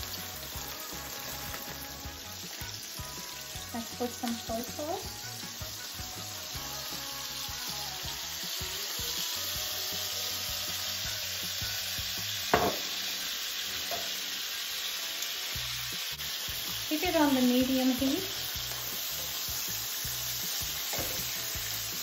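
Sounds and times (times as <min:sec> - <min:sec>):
meat and onions sizzling in pan: 0:00.0 - 0:22.0.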